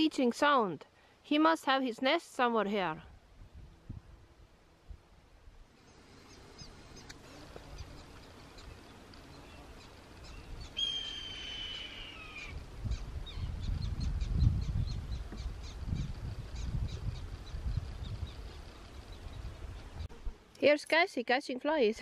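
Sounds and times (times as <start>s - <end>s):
small birds chirping: 5.8s - 20.1s
hawk screeching: 10.8s - 12.6s.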